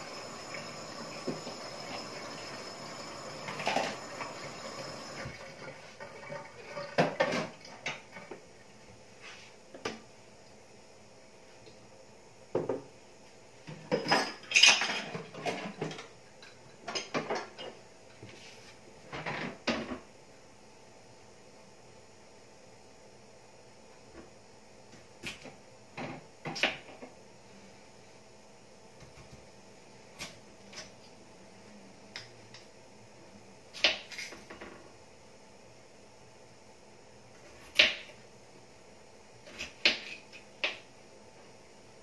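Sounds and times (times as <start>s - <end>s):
faint steady hiss: 0.0s - 42.0s
metal kitchenware and dishes clattering: 13.8s - 16.0s.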